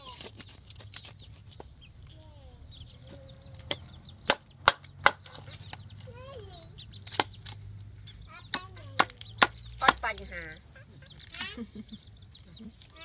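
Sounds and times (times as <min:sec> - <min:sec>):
chickens clucking: 0:00.0 - 0:13.0
sharp knocks: 0:03.6 - 0:05.8.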